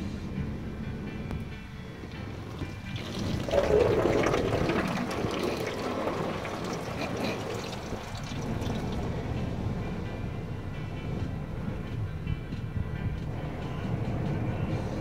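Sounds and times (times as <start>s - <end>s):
car wash water jets spraying: 2.2s - 9.5s.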